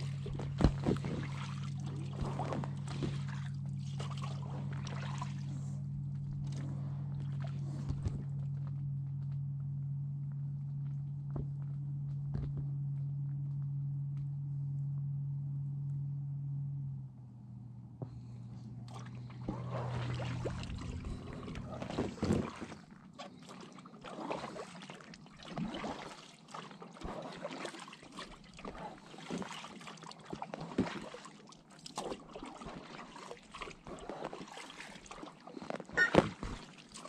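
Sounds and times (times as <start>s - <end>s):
paddle blades splashing in water: 0.0s - 8.6s, 18.8s - 37.0s
water trickling off paddle: 18.9s - 37.0s.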